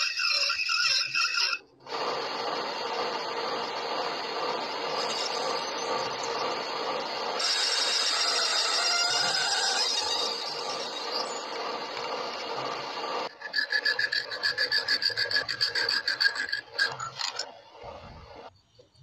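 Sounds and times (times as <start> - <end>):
metal rasping: 13.2 - 17.9.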